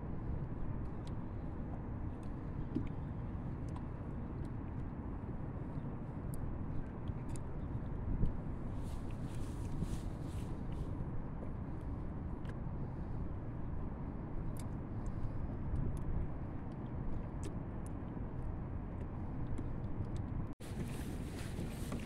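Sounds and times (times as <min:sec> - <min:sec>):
wind rumble on microphone: 0:00.0 - 0:22.0.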